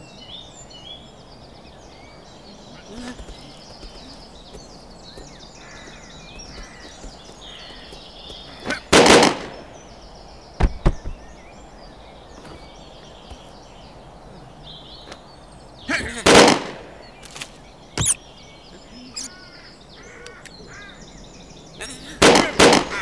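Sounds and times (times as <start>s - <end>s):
birdsong: 0.0s - 23.0s
pistol shots: 16.3s - 16.8s, 22.2s - 23.0s.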